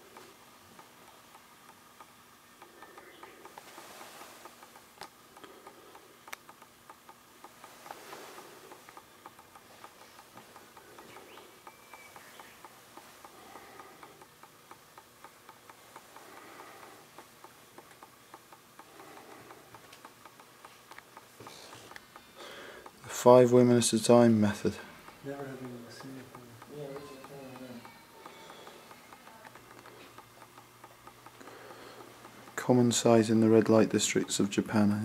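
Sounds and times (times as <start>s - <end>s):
faint regular ticking: 0.0s - 35.0s.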